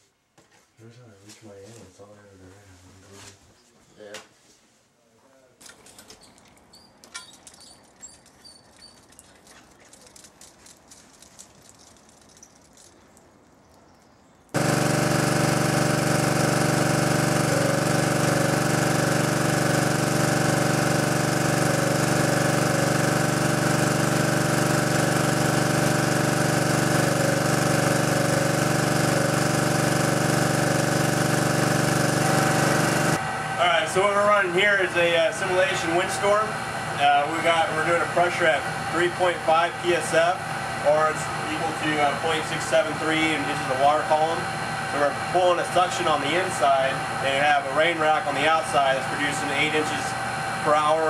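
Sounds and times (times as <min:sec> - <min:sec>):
loud mechanical drone: 0:14.6 - 0:51.0.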